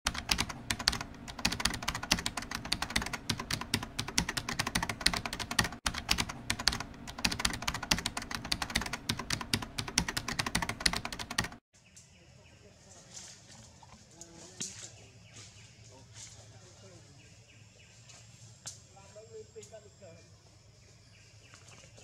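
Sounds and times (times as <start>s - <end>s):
rapid keyboard typing: 0.1s - 11.6s.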